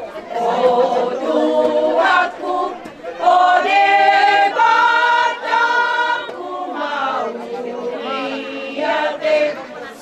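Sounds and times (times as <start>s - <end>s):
women singing in unison: 0.3s - 10.0s.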